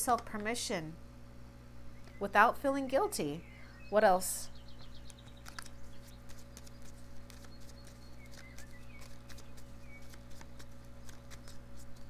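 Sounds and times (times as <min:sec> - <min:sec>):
low electrical hum: 0:00.0 - 0:12.0
faint bird chirps: 0:03.2 - 0:10.6
cards shuffling clicks and taps: 0:04.9 - 0:12.0.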